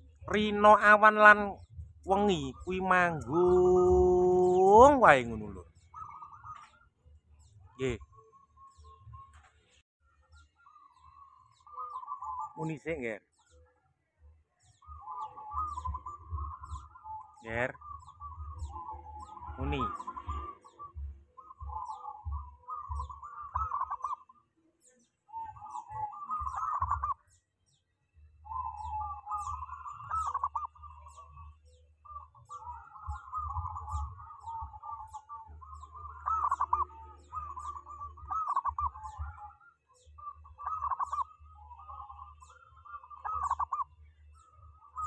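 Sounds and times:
faint high chirp: 0.0s - 45.0s
dove cooing: 0.9s - 9.5s, 10.2s - 12.8s, 14.6s - 27.4s, 28.2s - 45.0s.

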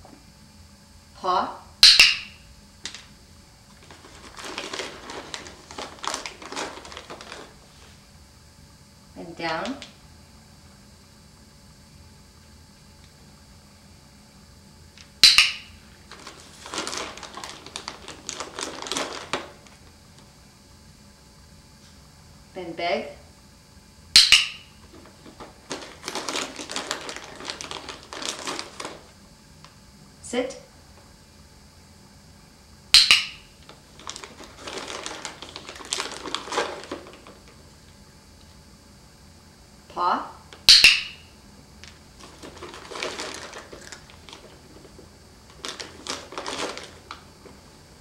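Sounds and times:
plastic bag crinkling: 3.7s - 8.0s, 15.9s - 19.9s, 24.8s - 29.1s, 33.6s - 37.8s, 41.8s - 48.0s
plastic bag clicks: 3.8s - 7.6s, 15.2s - 19.8s, 24.2s - 29.0s, 33.0s - 37.6s, 41.8s - 47.3s.

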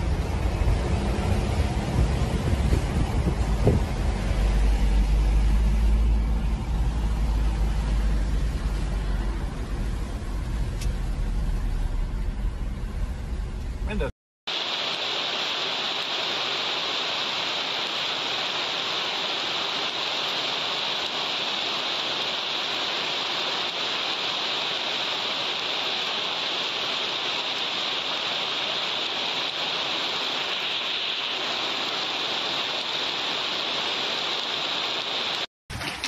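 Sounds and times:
hail and heavy rain on pavement: 14.5s - 36.0s.

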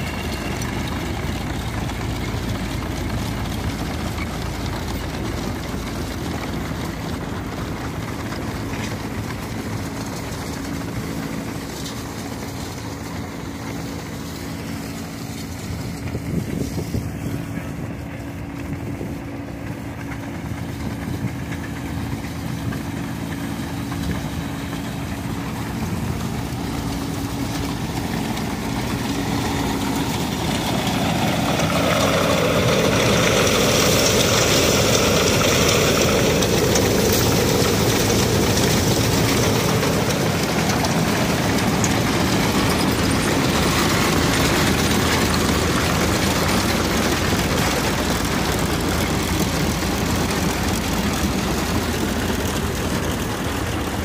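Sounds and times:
threshing machine rumbling and rattling: 0.0s - 54.0s
straw rushing through blower: 5.2s - 54.0s.

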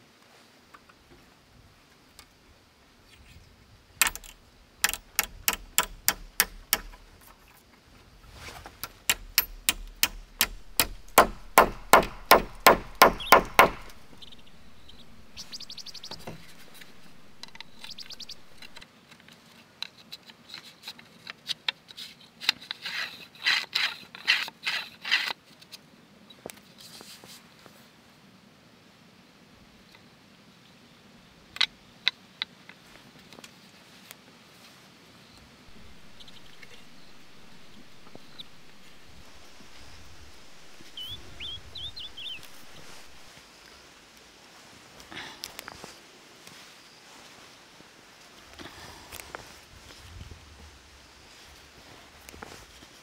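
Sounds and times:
hand tool striking wood: 4.0s - 7.2s, 8.8s - 18.8s, 35.7s - 43.3s.

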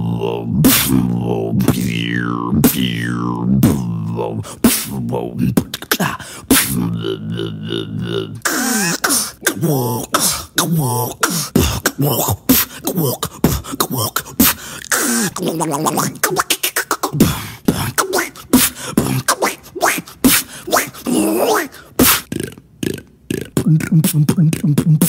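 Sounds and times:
beatboxer imitating a duck: 0.0s - 25.0s
beatboxer imitating a robot: 0.0s - 25.0s.

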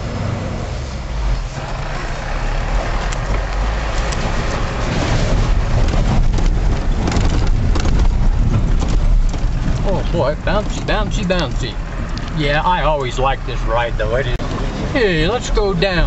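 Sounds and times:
engine and drivetrain rumble: 0.0s - 16.0s
road noise: 0.0s - 16.0s
knocks and rattles from bumps: 2.7s - 13.1s.

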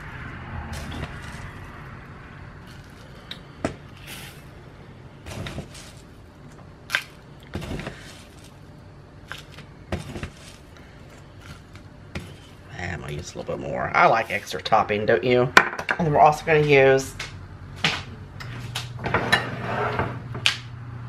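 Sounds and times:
oats rustling while poured: 7.0s - 8.7s, 9.3s - 10.7s.

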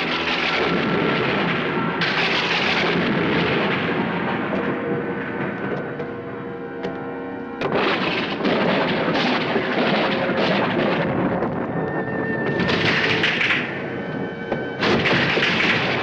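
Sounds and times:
thunder crash: 0.0s - 5.6s, 7.6s - 11.8s, 12.4s - 13.8s, 14.8s - 16.0s
dramatic music with held notes: 0.0s - 16.0s.

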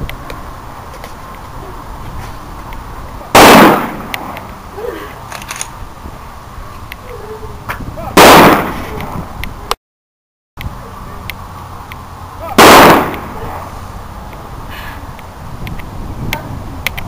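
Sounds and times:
rifle volleys echoing: 3.4s - 4.3s, 8.2s - 8.9s, 12.6s - 13.4s.

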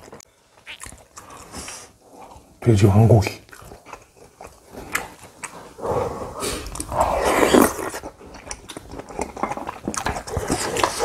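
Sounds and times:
close-up chewing: 0.0s - 2.6s, 3.2s - 11.0s.

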